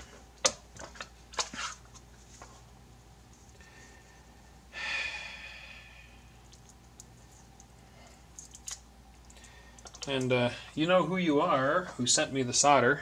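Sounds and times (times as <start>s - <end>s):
breathy exhale: 3.6s - 6.3s.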